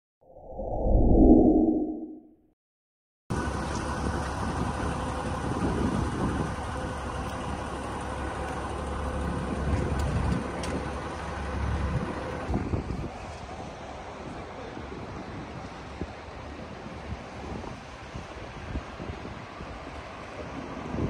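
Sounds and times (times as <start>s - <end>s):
vehicles running and idling: 3.3s - 21.0s.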